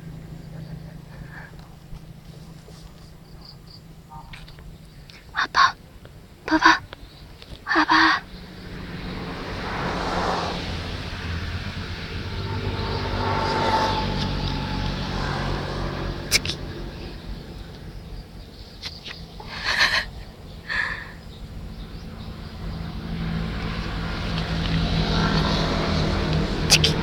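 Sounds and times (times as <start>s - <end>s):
vehicle engine hum: 0.0s - 27.0s
steady low drone: 8.2s - 18.8s, 19.4s - 27.0s.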